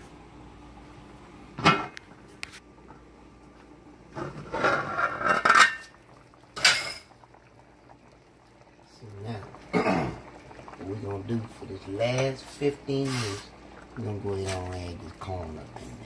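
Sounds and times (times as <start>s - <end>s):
metal pot lid clattering: 4.4s - 5.9s.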